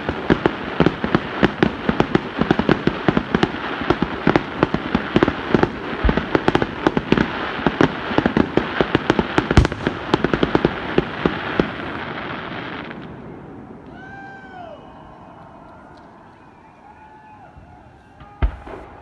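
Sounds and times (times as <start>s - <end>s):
fireworks popping and banging: 0.0s - 13.2s.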